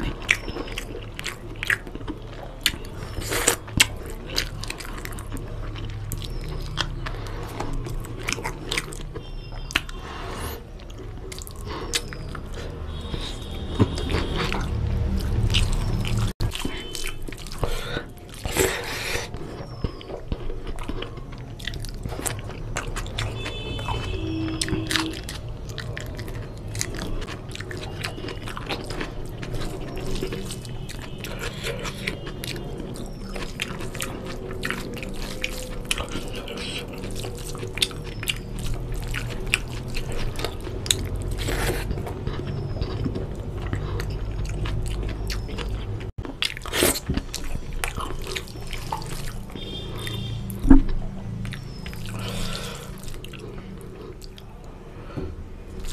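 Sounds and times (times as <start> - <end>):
wet chewing and lip-smacking: 0.0 - 54.7, 55.7 - 55.9.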